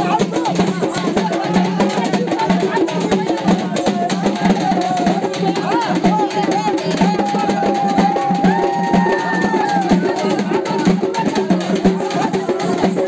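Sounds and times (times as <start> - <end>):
drum band drumming fast: 0.0 - 13.0.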